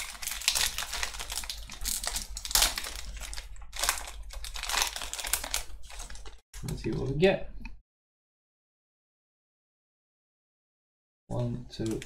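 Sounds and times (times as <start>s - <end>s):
foil wrapper crinkling and tearing: 0.0s - 6.8s.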